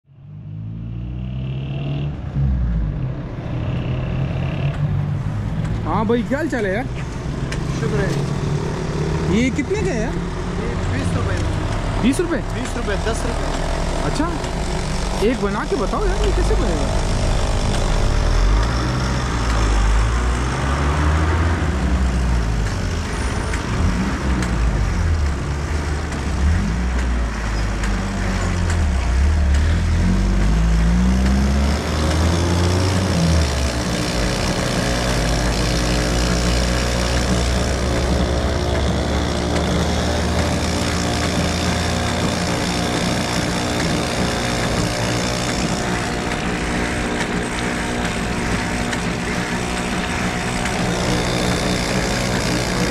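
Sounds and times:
cotton candy machine whirring: 0:12.0 - 0:19.7, 0:31.0 - 0:52.9.

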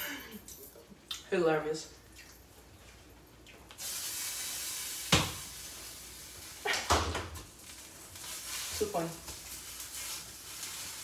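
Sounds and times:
food sizzling in a pan: 0:03.8 - 0:11.0.

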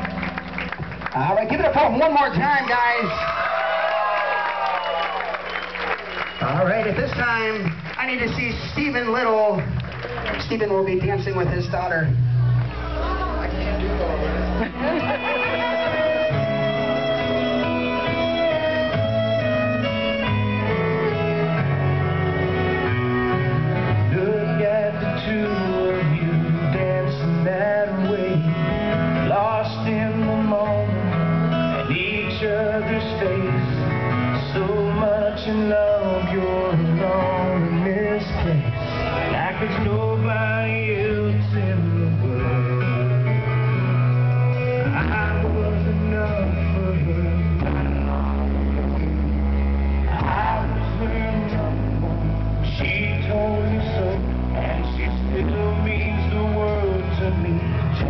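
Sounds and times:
acoustic guitar: 0:00.0 - 0:03.4, 0:05.0 - 0:58.0
man singing: 0:23.2 - 0:58.0.

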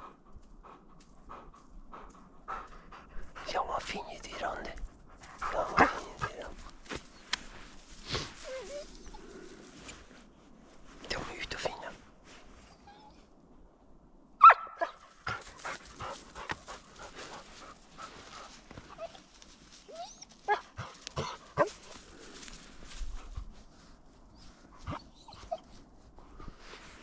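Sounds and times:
footsteps through brush: 0:05.2 - 0:12.7, 0:15.0 - 0:26.0
dog whining: 0:08.4 - 0:09.2, 0:19.9 - 0:20.7, 0:24.9 - 0:25.7
dog yelping: 0:14.4 - 0:15.0, 0:19.9 - 0:21.4.

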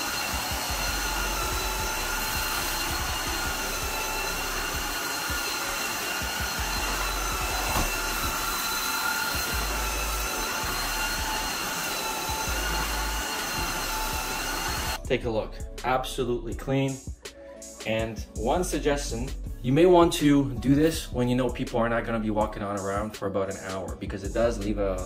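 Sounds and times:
vacuum mop motor whine: 0:00.0 - 0:15.0.

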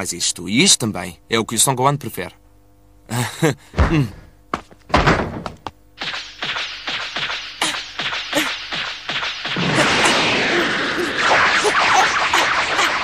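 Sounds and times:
cartoon thuds: 0:03.7 - 0:04.3, 0:04.9 - 0:13.0
steady rushing energy noise: 0:06.0 - 0:13.0.

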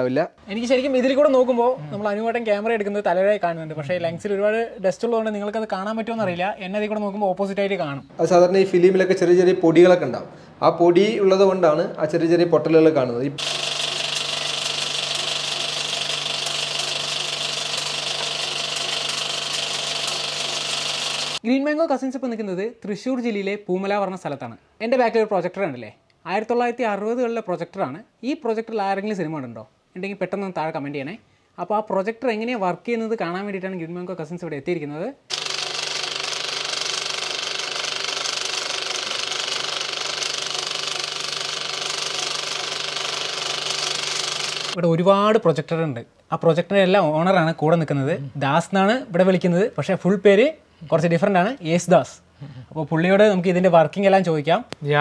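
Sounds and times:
film projector clattering: 0:13.4 - 0:21.4, 0:35.3 - 0:44.8
motor hum and hiss: 0:13.4 - 0:21.4.

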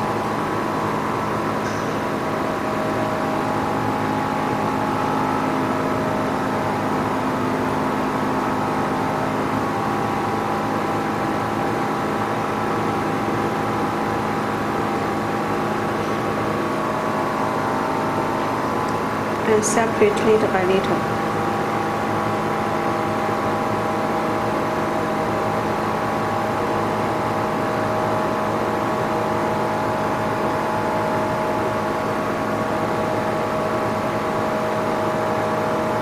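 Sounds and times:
machine mechanical hum: 0:00.0 - 0:36.0.

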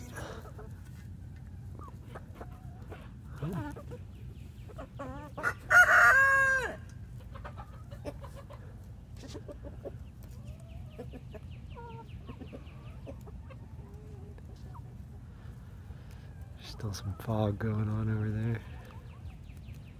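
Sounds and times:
chickens clucking softly: 0:00.0 - 0:19.9
rooster crowing: 0:05.4 - 0:06.8.

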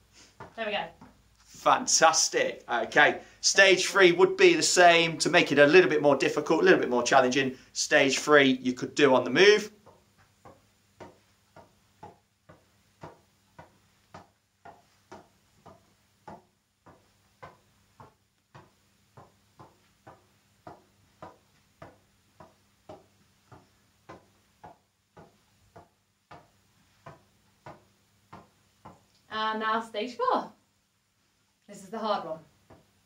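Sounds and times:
tennis ball tapping on racket: 0:00.4 - 0:01.2, 0:09.7 - 0:29.1, 0:32.6 - 0:33.0.

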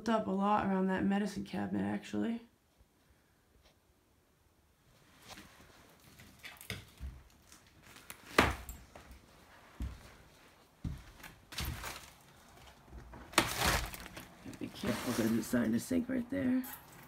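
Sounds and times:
footsteps on wooden floor: 0:08.9 - 0:13.2.

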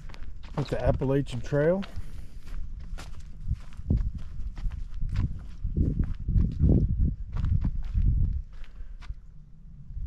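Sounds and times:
footsteps on trail: 0:00.0 - 0:09.3
low rumble: 0:02.4 - 0:10.0.

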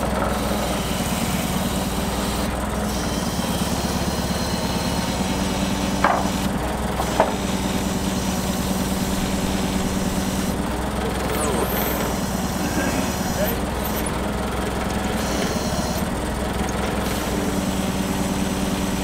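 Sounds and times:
forklift engine idling: 0:00.0 - 0:19.0
short squeaks: 0:06.2 - 0:17.3.

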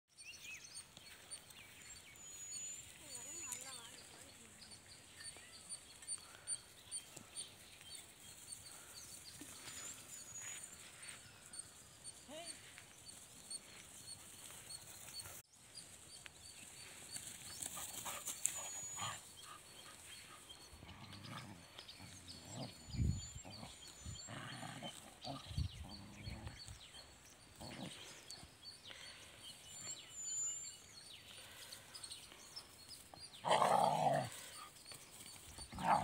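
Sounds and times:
dogs growling and grunting: 0:20.5 - 0:28.6, 0:33.3 - 0:34.7, 0:35.6 - 0:36.0.

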